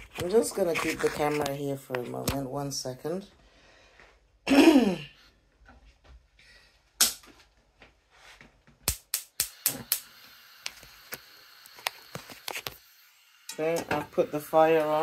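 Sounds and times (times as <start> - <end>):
gas flame hissing: 8.9 - 15.0.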